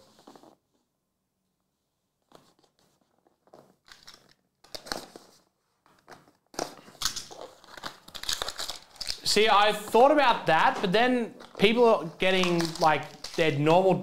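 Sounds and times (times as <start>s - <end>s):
plastic wrap crinkling and tearing: 6.4s - 13.8s.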